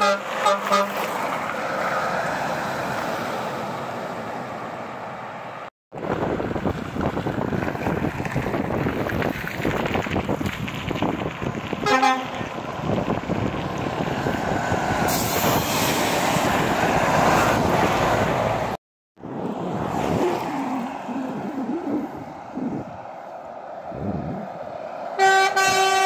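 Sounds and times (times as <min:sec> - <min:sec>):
truck horn toot: 0:00.0 - 0:01.0, 0:11.8 - 0:12.5, 0:25.2 - 0:26.0
roadside traffic: 0:00.0 - 0:26.0
truck engine and tyre noise: 0:00.0 - 0:26.0
wind noise: 0:06.0 - 0:18.6, 0:19.3 - 0:24.9.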